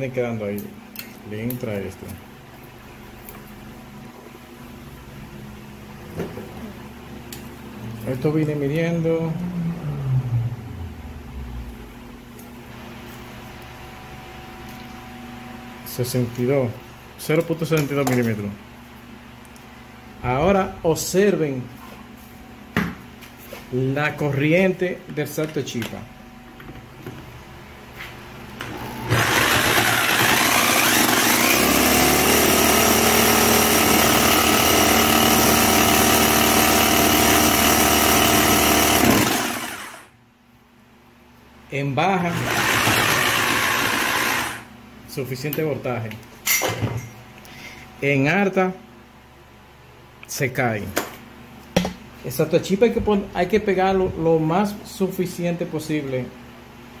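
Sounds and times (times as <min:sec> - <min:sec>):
steady low hum: 0:00.0 - 0:31.5
electric drill spinning: 0:28.6 - 0:40.1, 0:42.3 - 0:44.7.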